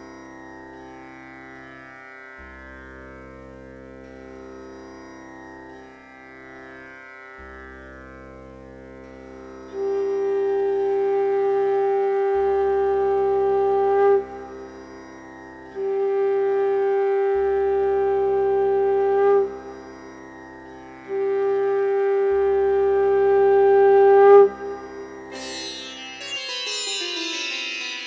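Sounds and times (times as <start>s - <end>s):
classical instrumental music: 21.2s - 28.0s.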